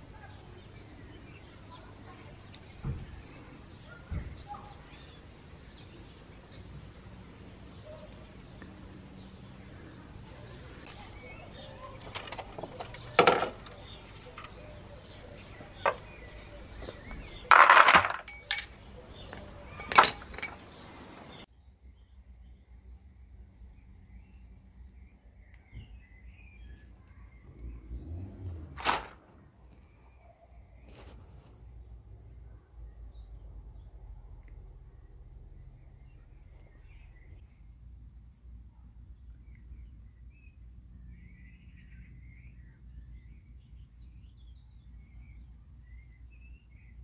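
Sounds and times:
sharp metallic clinks: 17.5s - 20.7s
metal objects rattling: 17.5s - 20.8s.

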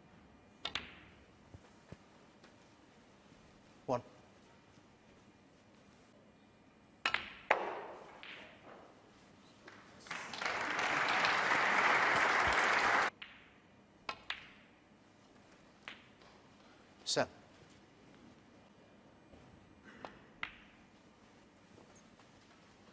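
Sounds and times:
snooker balls clacking: 7.1s - 9.0s
audience applause: 10.0s - 13.1s.

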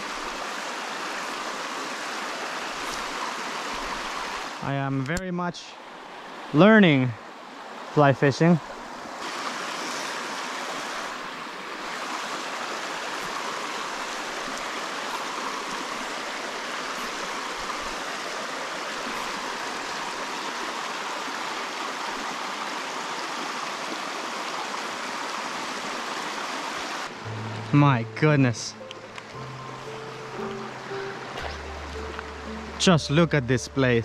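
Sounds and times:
creek running over rocks: 0.0s - 34.0s.

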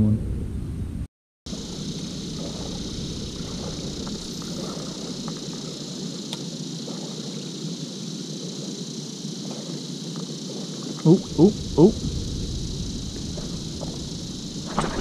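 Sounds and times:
constant high hiss: 1.5s - 15.0s
low rushing: 11.2s - 15.0s.

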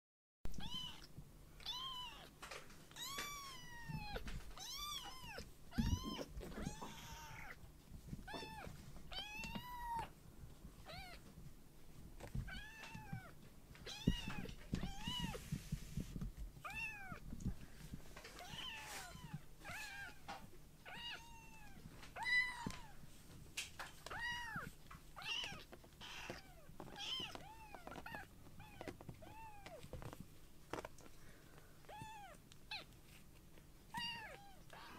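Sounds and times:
kitten meowing: 0.5s - 2.3s, 2.9s - 7.6s, 8.3s - 10.1s, 33.9s - 34.9s.

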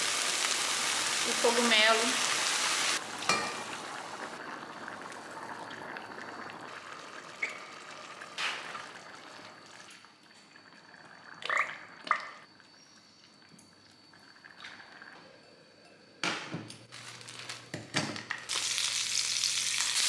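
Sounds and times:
food sizzling in a pot: 0.0s - 11.2s, 16.8s - 20.0s.

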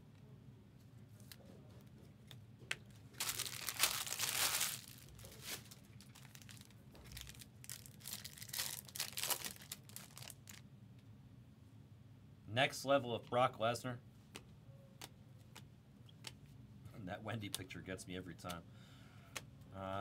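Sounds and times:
wrapper crinkling and card clicks: 3.2s - 10.6s
wrapper tearing open: 3.2s - 10.6s.

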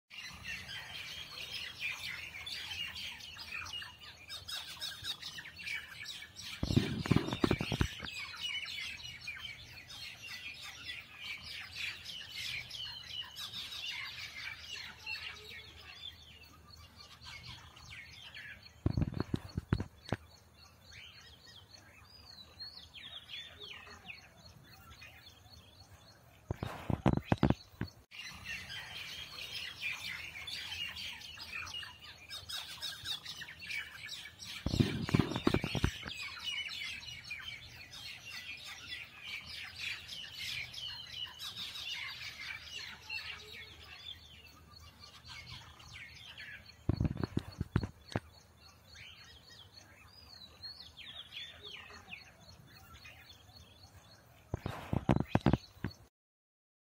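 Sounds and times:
small birds chirping: 0.1s - 56.1s.

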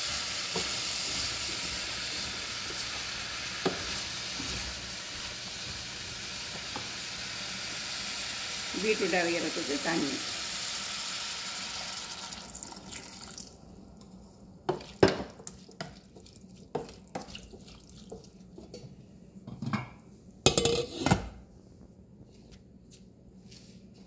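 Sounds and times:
water hissing in hot saucepan: 0.0s - 13.6s.

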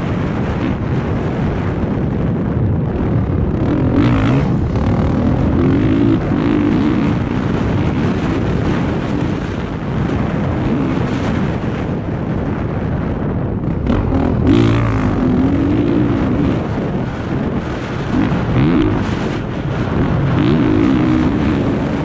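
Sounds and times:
motorcycle engine revving: 2.9s - 12.0s, 13.6s - 22.0s.

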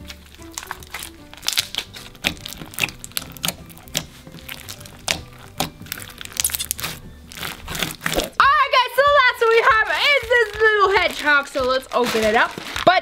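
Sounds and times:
wet slime clicks and pops: 0.6s - 7.0s.

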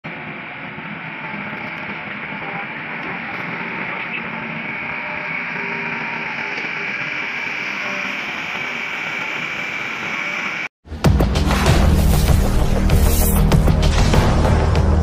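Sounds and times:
excavator diesel engines running: 0.1s - 10.7s.

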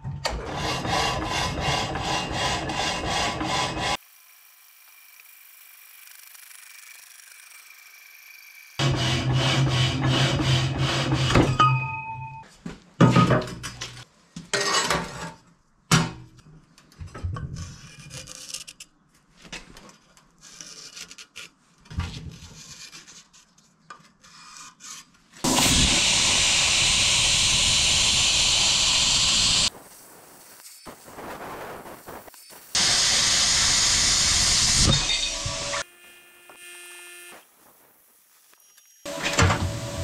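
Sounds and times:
metal sawing strokes: 0.3s - 4.0s, 8.8s - 11.5s
loud even hiss: 25.4s - 35.2s.

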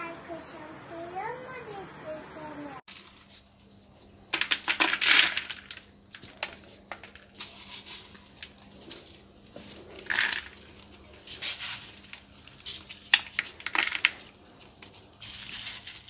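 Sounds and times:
kibble pouring and rattling: 2.9s - 3.6s, 4.3s - 16.0s
kibble pieces clicking: 4.3s - 8.6s, 10.0s - 10.6s.

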